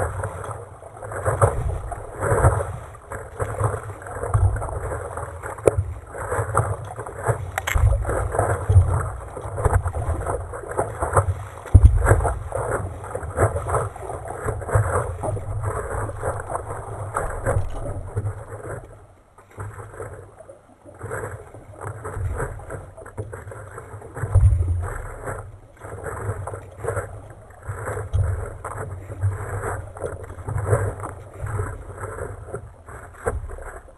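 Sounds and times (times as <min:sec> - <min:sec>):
wind buffeting microphone: 0:00.0 - 0:18.7
paddle dipping in water: 0:00.0 - 0:33.9
water splashing against hull: 0:00.0 - 0:33.9.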